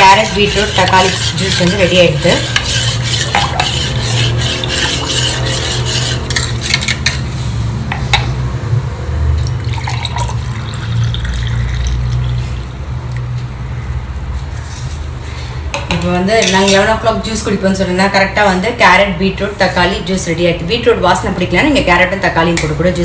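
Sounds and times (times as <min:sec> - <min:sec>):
juice pouring into glass: 0:09.4 - 0:12.4.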